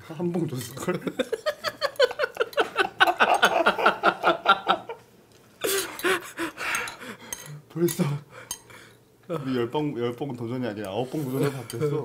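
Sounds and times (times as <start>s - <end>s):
young men laughing: 0.8s - 7.2s.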